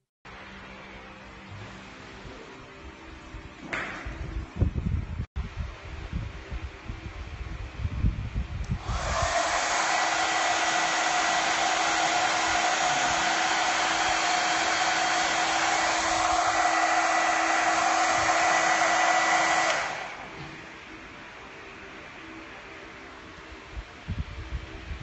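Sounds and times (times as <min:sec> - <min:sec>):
hair dryer running: 0:08.6 - 0:20.7.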